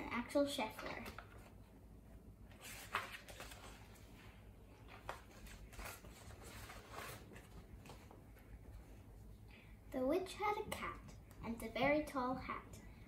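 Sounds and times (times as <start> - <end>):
book pages turning: 0.6 - 1.6, 2.5 - 8.6.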